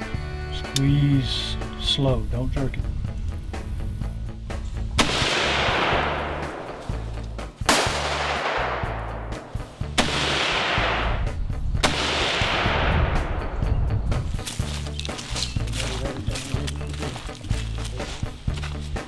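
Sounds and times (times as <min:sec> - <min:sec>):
background music: 0:00.0 - 0:19.0
rifle shots with echo: 0:05.0 - 0:07.0, 0:07.6 - 0:13.6.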